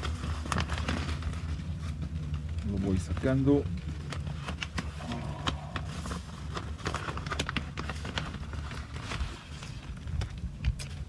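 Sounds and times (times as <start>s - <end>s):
plastic bag crinkling: 0.0s - 11.0s
low rumble: 0.1s - 7.2s.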